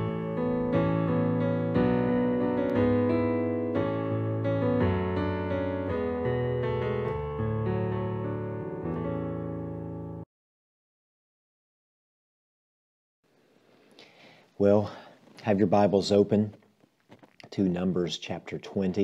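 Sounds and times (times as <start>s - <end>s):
piano playing slow chords: 0.0s - 10.3s.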